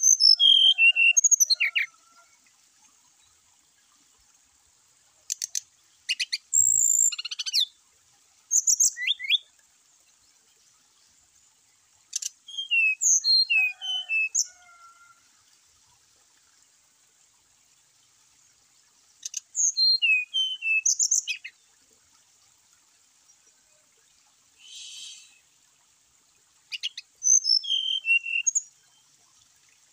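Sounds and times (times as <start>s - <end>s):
bird singing high whistles: 0.0s - 1.8s, 12.5s - 14.3s, 19.6s - 21.4s, 24.6s - 25.4s, 27.2s - 28.6s.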